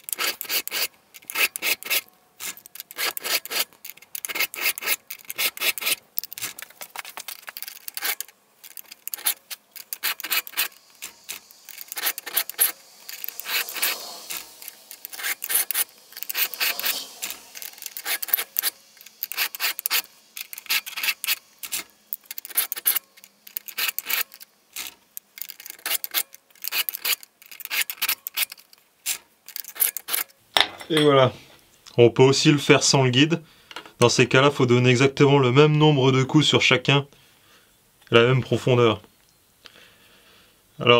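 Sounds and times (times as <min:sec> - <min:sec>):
file rasping on chainsaw chain: 0:00.0 - 0:30.3.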